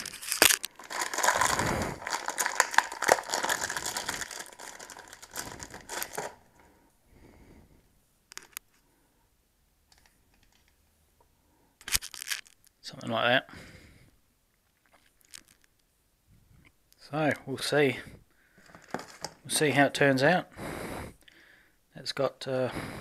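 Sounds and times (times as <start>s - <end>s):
plastic bag crinkling: 0.0s - 6.7s, 11.8s - 12.7s, 15.0s - 15.8s, 18.6s - 19.4s
faint clicks of parts handled: 8.3s - 8.9s, 18.6s - 19.4s.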